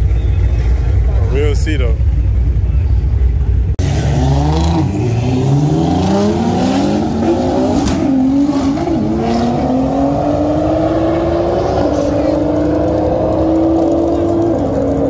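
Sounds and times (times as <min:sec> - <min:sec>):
car engine accelerating hard: 0:03.8 - 0:15.0.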